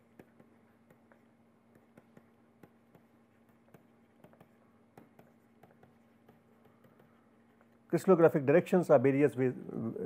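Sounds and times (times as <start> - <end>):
stylus ticking on pen tablet: 0.2 - 7.2.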